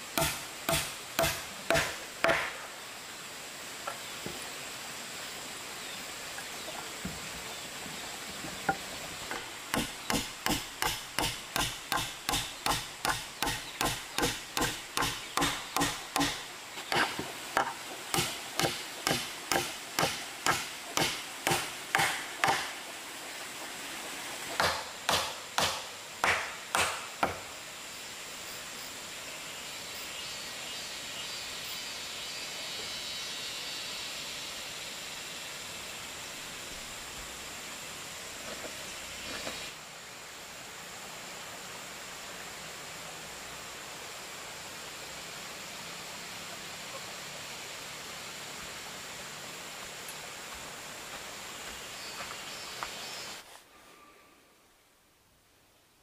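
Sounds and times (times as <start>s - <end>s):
hand tool striking wood: 0.2s - 2.6s, 8.7s - 22.8s, 24.5s - 27.5s.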